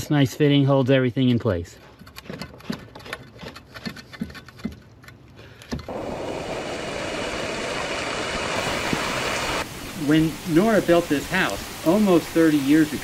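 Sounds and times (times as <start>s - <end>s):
rain falling on leaves: 5.9s - 13.0s.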